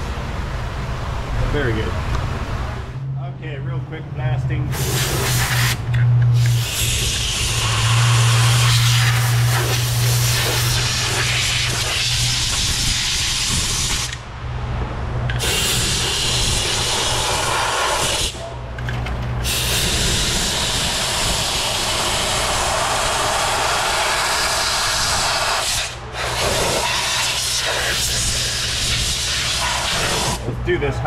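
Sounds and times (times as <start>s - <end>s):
spray hissing at high pressure: 4.7s - 14.2s, 15.4s - 18.4s, 19.4s - 30.4s.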